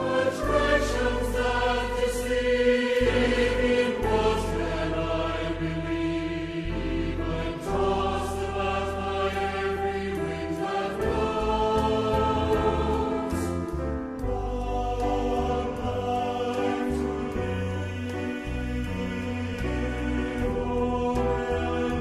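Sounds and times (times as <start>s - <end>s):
choir singing slow song: 0.0s - 22.0s.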